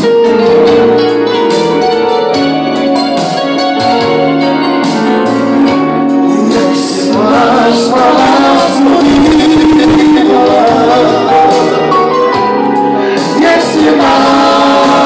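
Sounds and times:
keyboard and bass guitar music: 0:00.0 - 0:15.0
man singing into microphone: 0:06.2 - 0:12.1, 0:13.0 - 0:15.0.

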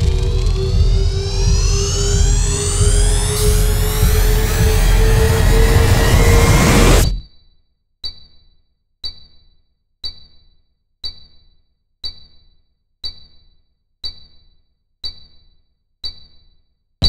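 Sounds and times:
low thud: 0:00.0 - 0:07.2.

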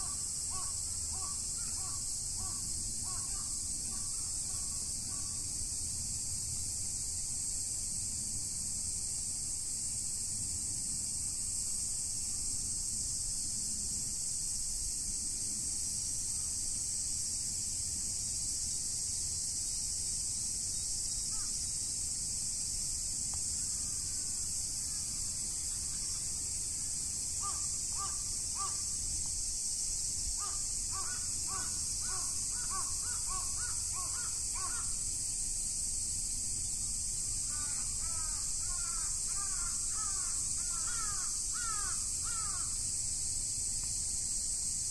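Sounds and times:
high-pitched insect chorus: 0:00.0 - 0:44.9.

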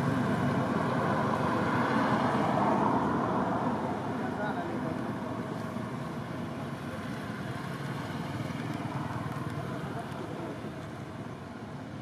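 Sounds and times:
motorbikes: 0:00.0 - 0:12.0
road traffic: 0:00.0 - 0:12.0
faint indistinct voices: 0:09.2 - 0:10.9.

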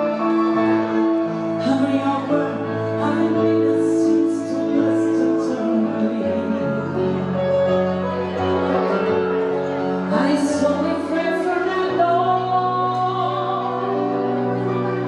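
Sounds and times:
pop song with singing: 0:01.5 - 0:07.5, 0:10.0 - 0:15.0.

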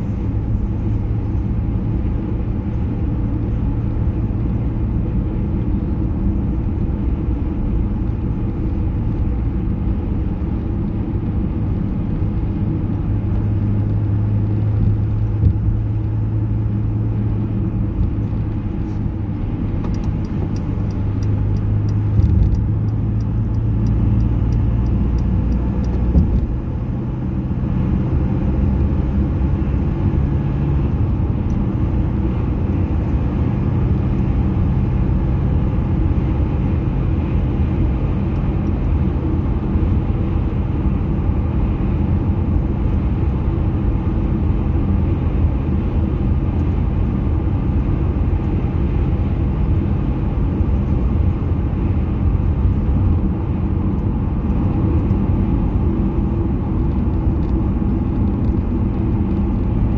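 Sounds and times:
car engine and tyre rumble: 0:00.0 - 0:59.9.

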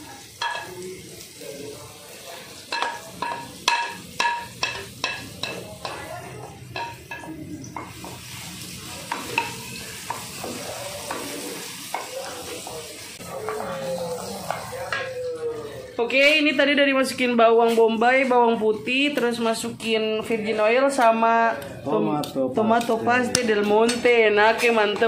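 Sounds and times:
onion and garlic sizzling in oil: 0:00.0 - 0:22.0, 0:22.6 - 0:25.0
wooden spatula tapping and scraping: 0:22.8 - 0:25.0.

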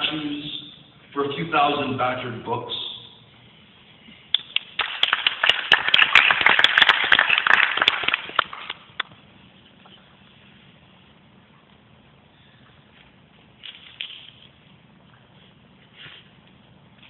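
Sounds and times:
audience applauding: 0:04.6 - 0:08.8.

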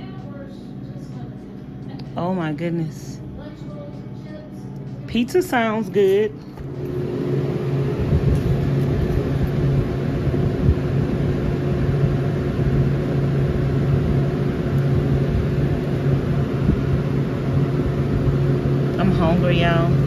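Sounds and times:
cooler electric hum: 0:00.0 - 0:20.0
fans whirring: 0:00.0 - 0:20.0
low rumble: 0:06.3 - 0:20.0.

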